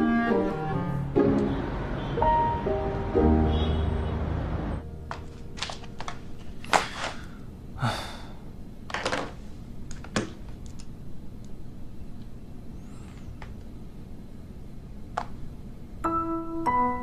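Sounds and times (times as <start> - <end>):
background music: 0.0 - 6.0.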